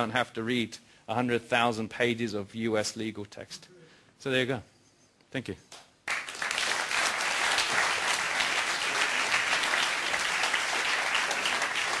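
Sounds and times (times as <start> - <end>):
audience applauding: 6.1 - 12.0.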